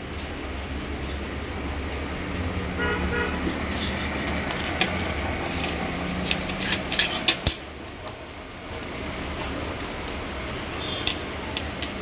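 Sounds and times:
horn tooting: 2.7 - 3.6.

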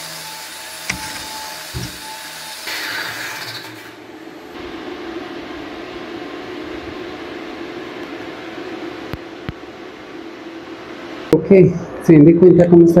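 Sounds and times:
angle grinder grinding steel: 0.0 - 3.9.

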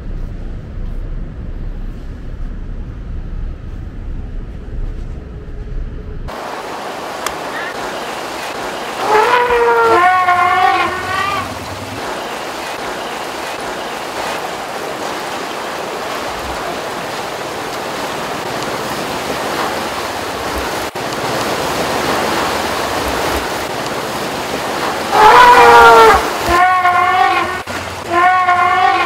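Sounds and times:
water rushing and splashing: 6.3 - 29.0
elephant call: 7.4 - 11.6, 25.1 - 29.0.

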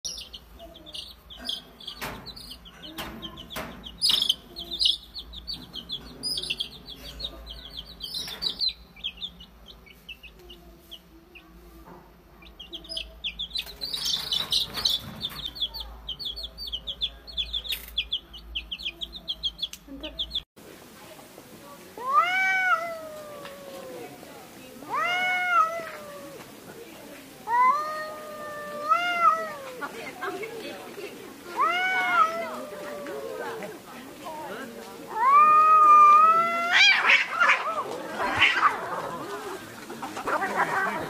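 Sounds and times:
baby chicks peeping: 0.0 - 20.5.

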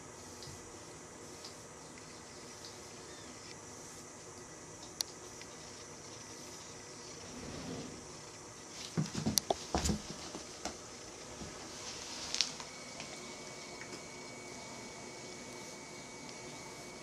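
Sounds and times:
cats scuffling and thumping: 7.3 - 13.2.

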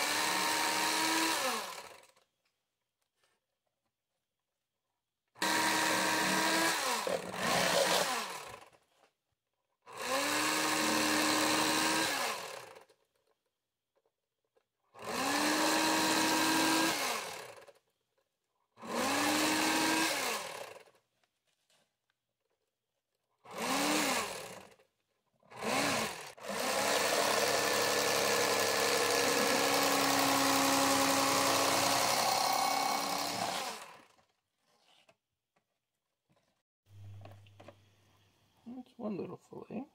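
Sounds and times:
electric fillet knife motor: 0.0 - 2.2, 5.4 - 8.8, 9.9 - 12.9, 15.0 - 17.7, 18.8 - 20.8, 23.5 - 24.8, 25.5 - 34.2.

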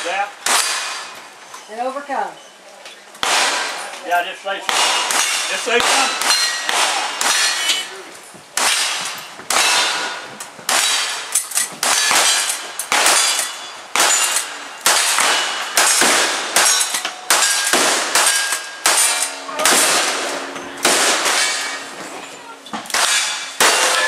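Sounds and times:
rifle shots: 3.2 - 3.9, 8.6 - 22.0, 22.9 - 24.0
steel targets clanging: 3.2 - 8.0, 8.6 - 24.0.

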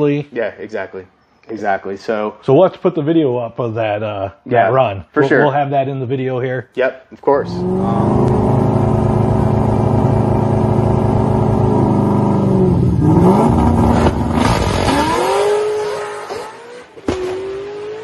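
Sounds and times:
drag car engine revving: 7.4 - 18.0.

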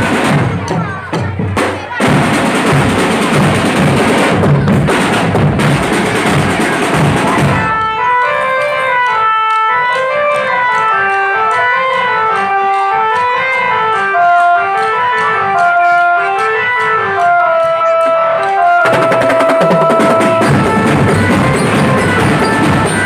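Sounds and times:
drums and cymbals: 0.0 - 7.8, 18.8 - 23.0
organ-like held notes: 7.7 - 23.0
light ticking percussion: 8.4 - 23.0.

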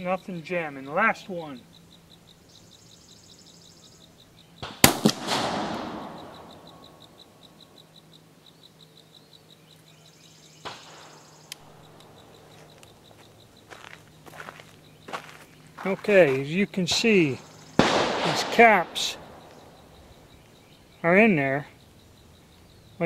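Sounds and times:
revolver gunshot with echo: 4.6 - 6.9, 17.8 - 20.0.

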